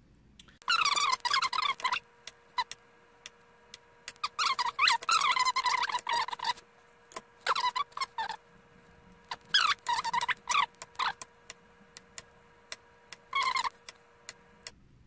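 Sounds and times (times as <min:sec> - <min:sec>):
knife squeaking through plantain: 0:00.6 - 0:02.0, 0:04.1 - 0:06.6, 0:07.4 - 0:08.4, 0:09.3 - 0:11.2, 0:13.3 - 0:14.0.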